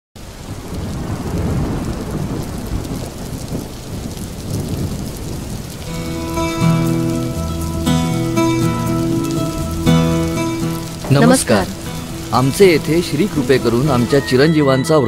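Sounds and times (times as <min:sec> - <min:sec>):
low rumble of thunder: 0:00.2 - 0:08.4
steady rain falling: 0:00.2 - 0:14.8
held music notes: 0:05.9 - 0:15.0.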